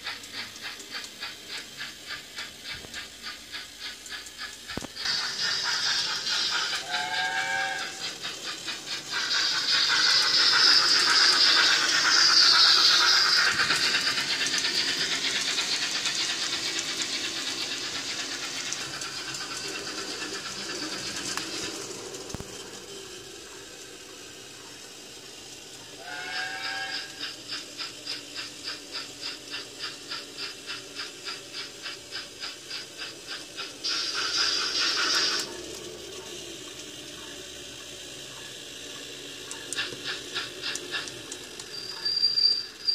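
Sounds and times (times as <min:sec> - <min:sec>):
steam hiss: 0:00.0 - 0:42.9
steam locomotive chuffing: 0:00.0 - 0:42.9
short train whistle: 0:06.8 - 0:08.0, 0:26.0 - 0:27.3.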